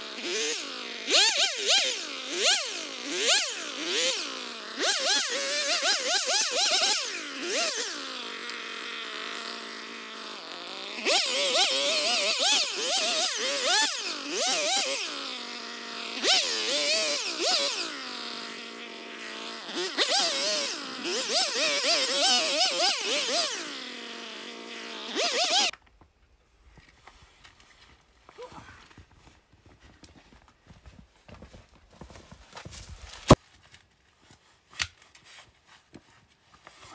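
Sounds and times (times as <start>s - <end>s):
chainsaw cutting wood: 0.0s - 25.8s.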